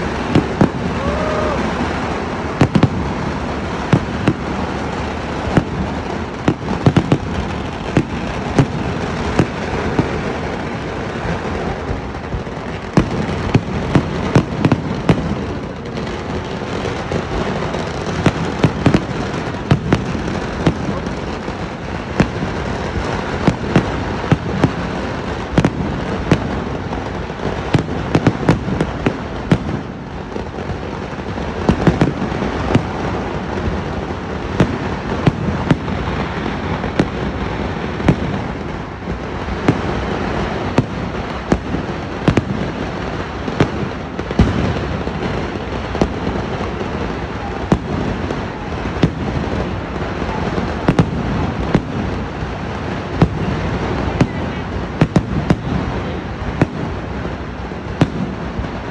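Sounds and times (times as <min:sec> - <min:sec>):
fireworks exploding: 0:00.0 - 0:58.9.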